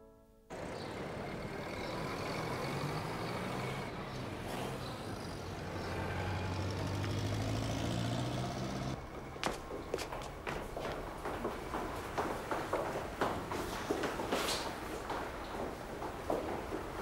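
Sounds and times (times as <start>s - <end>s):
footsteps on hard floor: 9.0s - 17.0s.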